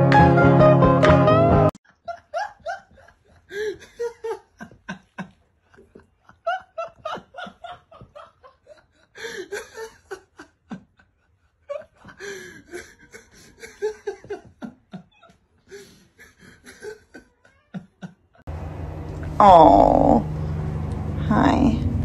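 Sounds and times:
person laughing hard: 1.9 - 18.4.

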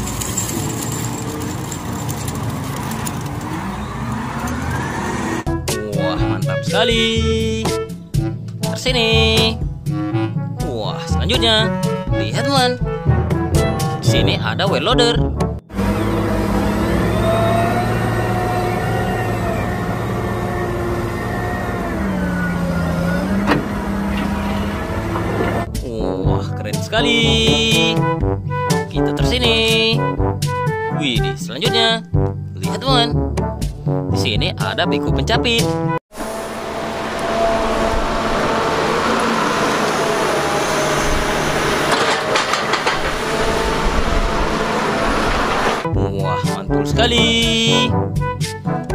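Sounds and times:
wheel loader diesel engine: 0.0 - 5.6, 15.7 - 25.7, 36.1 - 45.9.

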